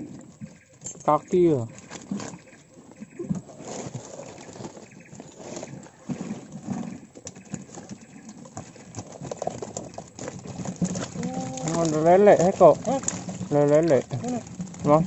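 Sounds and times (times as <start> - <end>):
fish splashing: 1.7 - 15.0.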